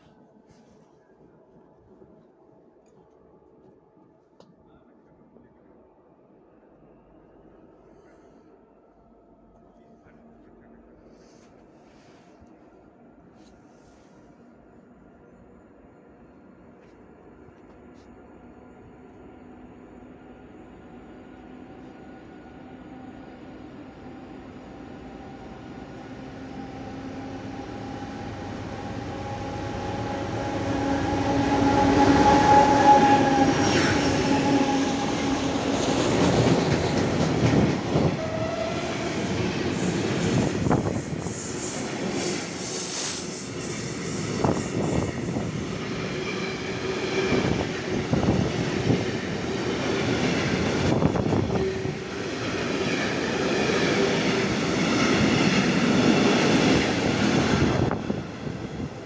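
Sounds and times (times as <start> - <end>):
train rumble: 0.0 - 59.0
locomotive horn blast: 29.0 - 35.3
train wheels clickety-clack: 31.7 - 58.1.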